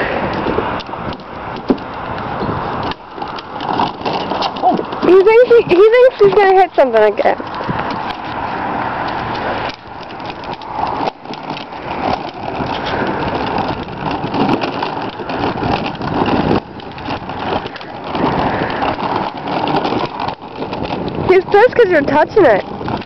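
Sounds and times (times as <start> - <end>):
toy tractor rattling rumble: 0.0 - 23.0.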